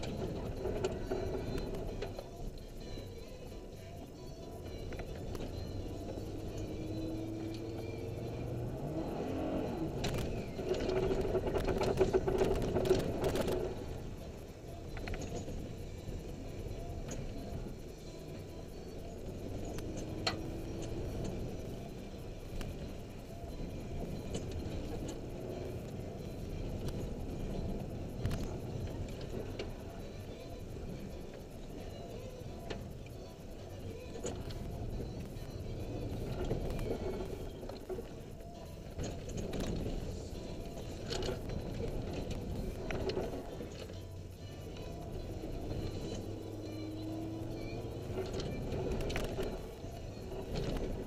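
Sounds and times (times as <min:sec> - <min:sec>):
rattles and clicks: 0:00.0 - 0:51.0
vehicle engine running: 0:00.0 - 0:51.0
rattles and knocks from bumps: 0:10.0 - 0:14.0.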